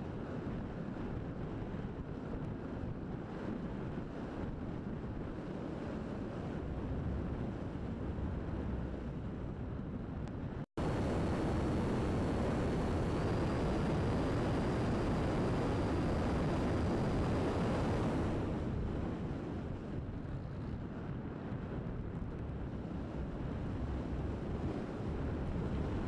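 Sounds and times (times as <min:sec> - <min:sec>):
wind rushing over camera: 0:00.0 - 0:26.0
faint high whine: 0:10.8 - 0:18.6.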